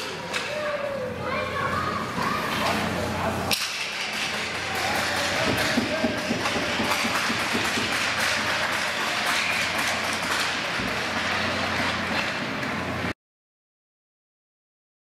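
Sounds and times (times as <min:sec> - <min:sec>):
crowd hubbub: 0:00.0 - 0:12.6
sharp taps and claps: 0:04.9 - 0:11.3.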